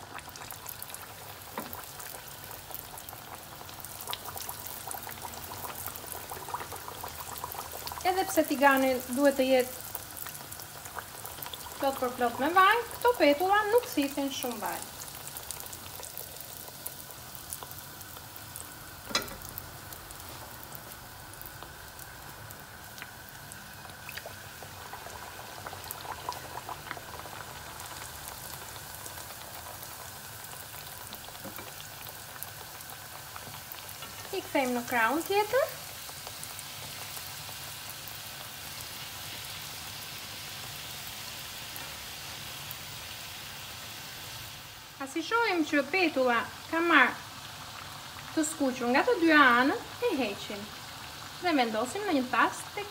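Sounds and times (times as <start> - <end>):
sharp crack from frying oil: 0.0 - 8.0, 14.8 - 43.8
dough deep-frying in hot oil: 0.0 - 52.9.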